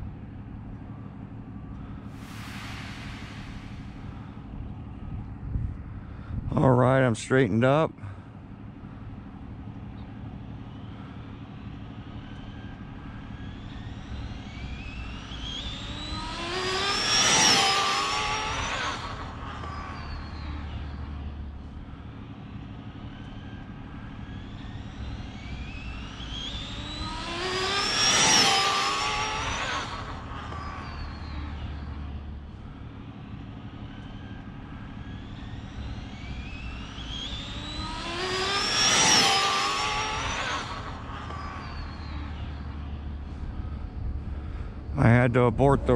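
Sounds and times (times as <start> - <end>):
rc car motor whine passing: 0.9 - 6.7, 8.1 - 45.0.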